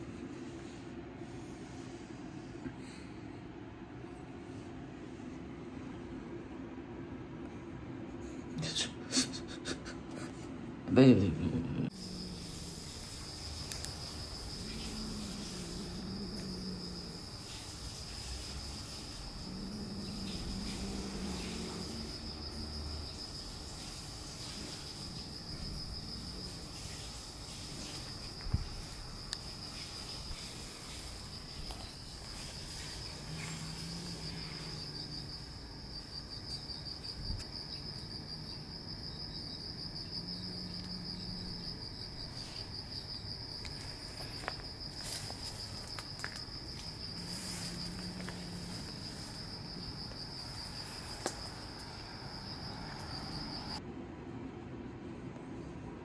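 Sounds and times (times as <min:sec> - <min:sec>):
insects trilling: 0:11.0 - 0:53.8.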